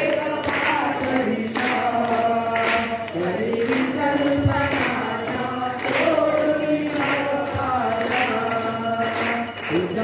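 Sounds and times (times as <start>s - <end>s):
voices chanting a devotional hymn: 0.0s - 10.0s.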